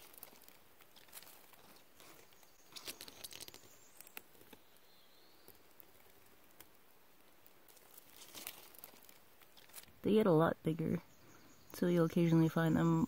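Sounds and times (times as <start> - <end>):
dry leaves rustling: 0.0 - 10.2.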